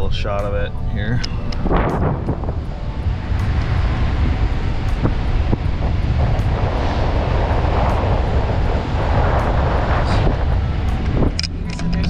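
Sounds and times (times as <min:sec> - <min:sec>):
car engine rumble: 0:00.0 - 0:12.0
road noise: 0:00.0 - 0:12.0.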